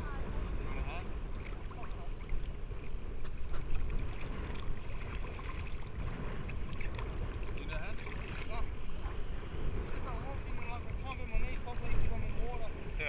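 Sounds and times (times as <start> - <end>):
sea water sloshing: 0.0 - 13.0.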